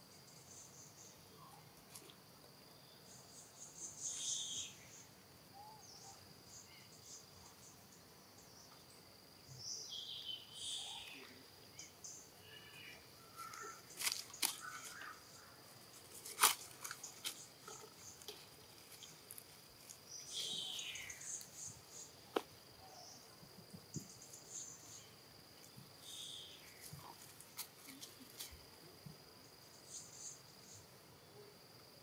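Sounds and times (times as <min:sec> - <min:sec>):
high insect drone: 0:00.0 - 0:32.0
dry leaves crackling: 0:13.4 - 0:15.2, 0:15.8 - 0:21.5.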